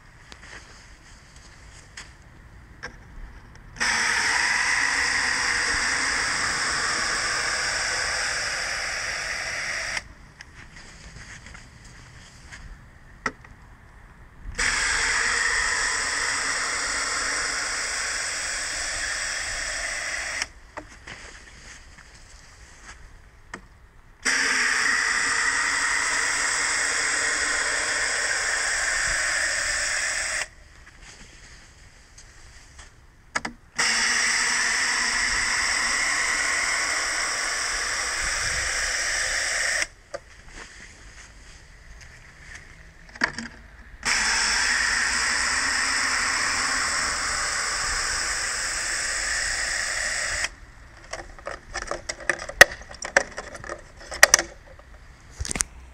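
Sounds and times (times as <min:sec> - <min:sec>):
water spraying and splashing: 0:14.6 - 0:20.4, 0:33.8 - 0:39.8, 0:44.0 - 0:50.4.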